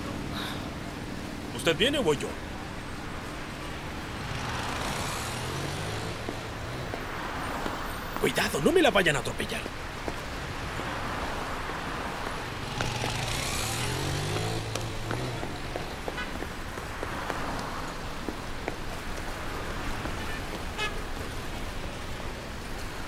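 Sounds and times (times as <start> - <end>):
street traffic noise: 0.0 - 23.0
car passing close by: 4.0 - 8.2, 10.3 - 18.1.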